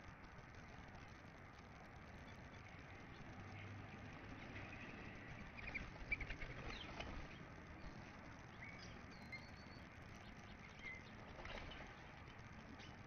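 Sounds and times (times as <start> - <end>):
small birds chirping: 1.8 - 13.0
wing flutters and taps: 5.4 - 8.1, 10.2 - 13.0.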